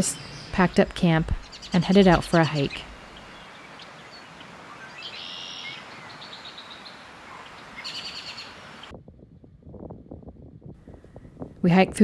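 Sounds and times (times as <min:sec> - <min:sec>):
songbirds calling: 0:00.0 - 0:08.9
steady outdoor hiss: 0:00.0 - 0:08.9.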